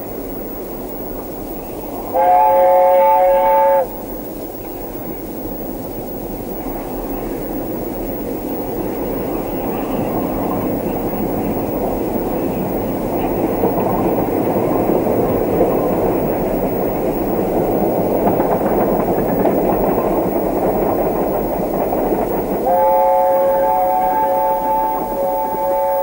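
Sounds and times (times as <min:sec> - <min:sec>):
train rumble and clickety-clack: 0:00.0 - 0:26.0
train horn chord: 0:02.0 - 0:04.1, 0:22.6 - 0:26.0.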